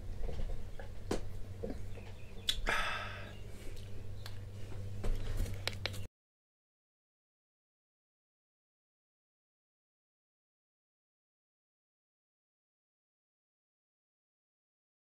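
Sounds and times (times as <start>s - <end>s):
steady low hum: 0.0s - 6.1s
man breathing out: 2.6s - 3.8s.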